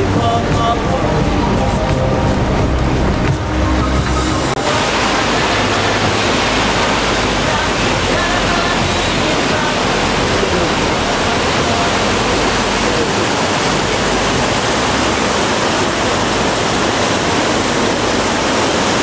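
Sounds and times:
water rushing over weirs: 0.0s - 19.0s.

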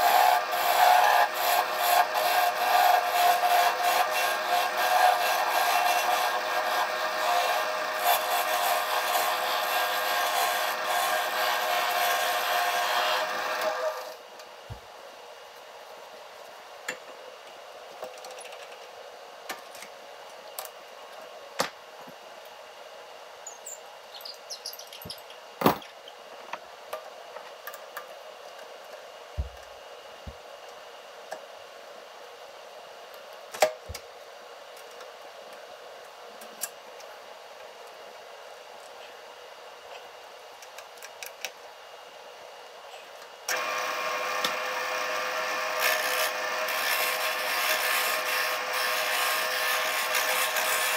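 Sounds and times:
wood lathe motor whine: 0.0s - 14.2s, 43.5s - 50.9s.

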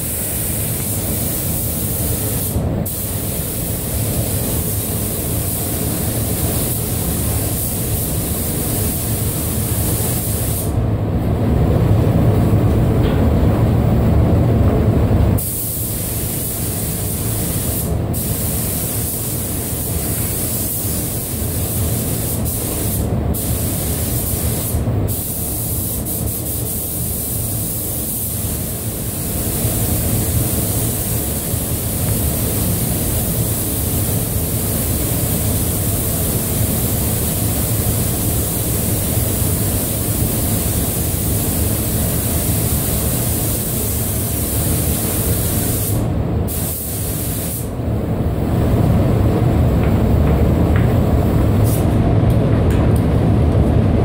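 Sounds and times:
paint spray gun hissing: 0.0s - 10.8s, 15.4s - 47.7s
low rumble of air handling: 2.2s - 16.5s, 47.3s - 54.0s.

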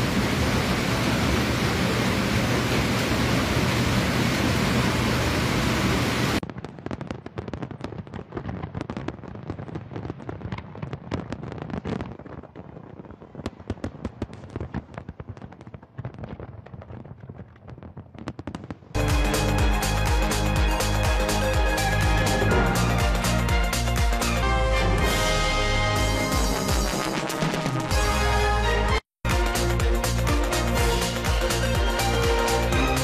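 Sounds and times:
fireworks crackling and popping: 6.3s - 24.4s
loud rushing noise: 20.9s - 24.4s.

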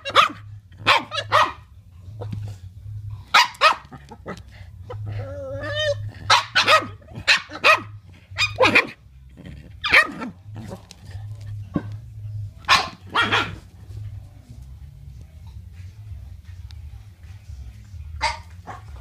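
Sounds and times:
dogs barking: 0.0s - 2.6s, 3.2s - 12.0s, 12.6s - 14.0s, 18.2s - 19.0s.

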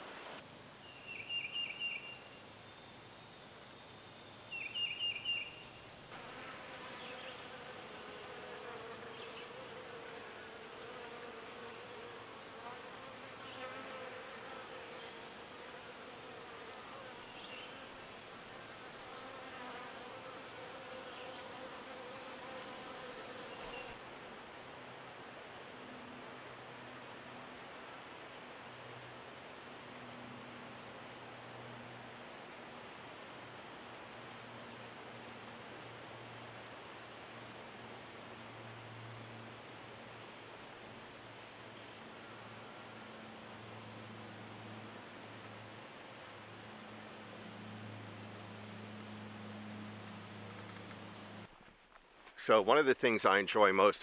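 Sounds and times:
bird song: 0.0s - 5.9s, 17.2s - 17.8s, 22.5s - 24.0s, 29.0s - 29.5s, 32.9s - 33.9s, 43.6s - 44.4s, 47.3s - 51.1s
flying insect buzzing: 6.1s - 24.0s.

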